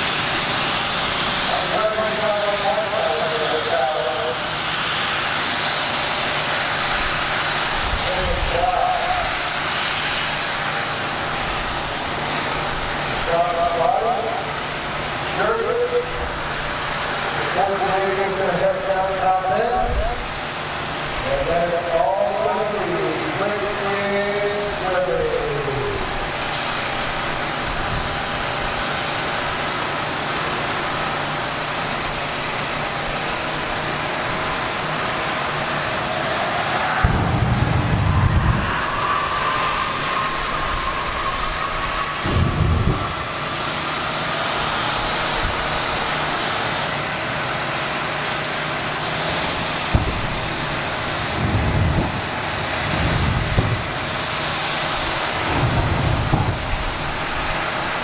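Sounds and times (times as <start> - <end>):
turbine engine whine: 0.0 - 58.0
loud thrust blasts: 36.6 - 40.8, 41.8 - 43.4, 49.9 - 54.3, 55.0 - 57.5.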